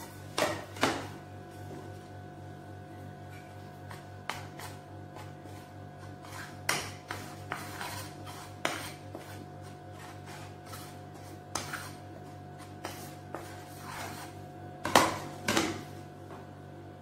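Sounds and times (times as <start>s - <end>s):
metal spoon scraping ceramic bowl: 4.0s - 14.4s.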